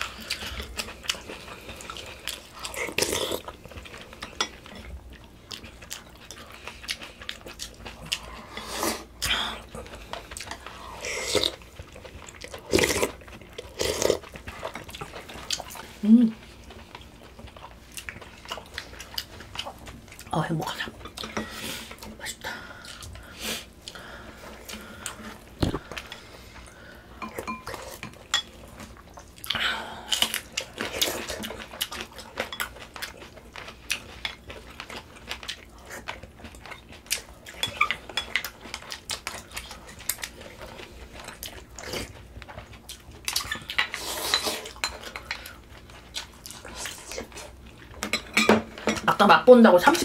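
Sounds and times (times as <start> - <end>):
chewing: 0.0 - 49.0
utensils clinking against bowls: 27.2 - 28.6, 36.6 - 38.5, 48.0 - 49.3.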